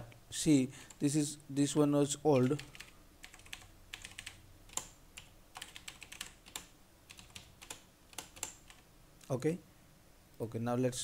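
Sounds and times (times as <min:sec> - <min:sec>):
keyboard typing: 0:02.3 - 0:08.8.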